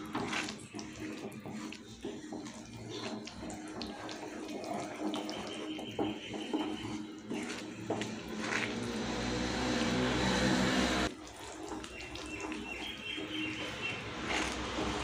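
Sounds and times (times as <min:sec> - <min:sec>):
batter sizzling in oil: 0:00.0 - 0:15.0
wooden spatula scraping pan: 0:00.0 - 0:15.0.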